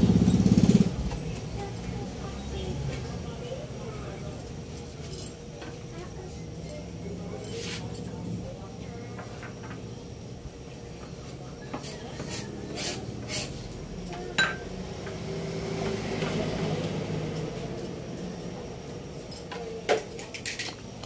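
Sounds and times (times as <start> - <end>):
broth boiling in a pot: 0.0 - 21.0
glass lid clinking: 14.4 - 14.6.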